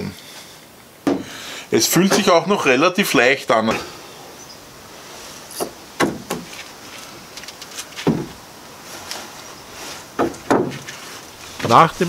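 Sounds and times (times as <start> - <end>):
foam panel knocking and scraping: 5.6 - 6.7, 7.8 - 8.4, 9.9 - 11.9.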